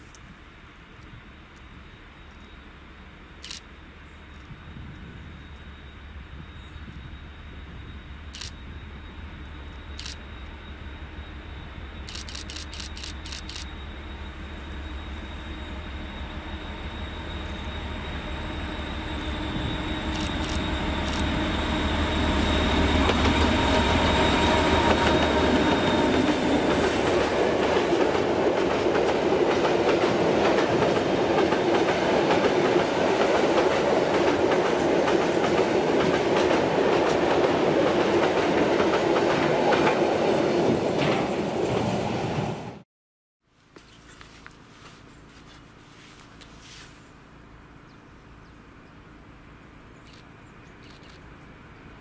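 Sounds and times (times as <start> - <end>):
thin high whine: 0.0 - 28.5
diesel locomotive running: 0.2 - 42.8
train wheels clattering on rails: 18.0 - 42.0.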